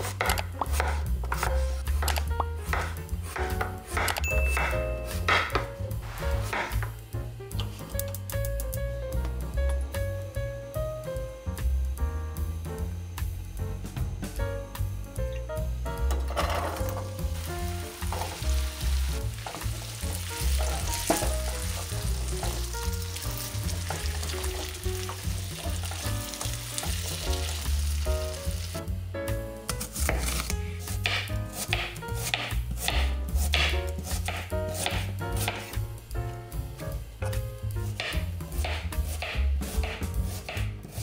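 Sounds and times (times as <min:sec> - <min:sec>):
knife chopping on cutting board: 0:00.0 - 0:05.8, 0:29.7 - 0:35.8, 0:37.3 - 0:41.0
potatoes sizzling in oil: 0:16.9 - 0:29.1.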